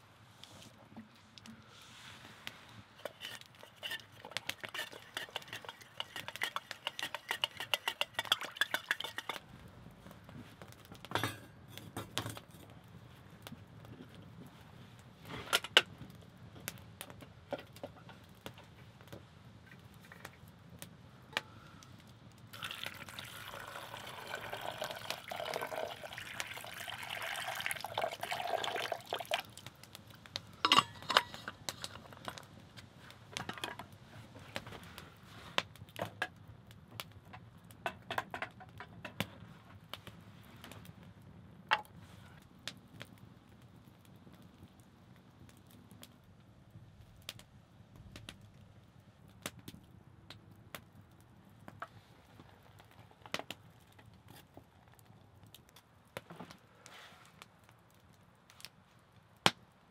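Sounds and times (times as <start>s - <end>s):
metal pots clinking: 3.0s - 9.4s, 11.1s - 11.5s, 30.6s - 32.4s
spoon stirring in steel mug: 3.0s - 9.4s, 22.6s - 29.4s, 30.7s - 32.0s
liquid pouring: 22.6s - 29.6s.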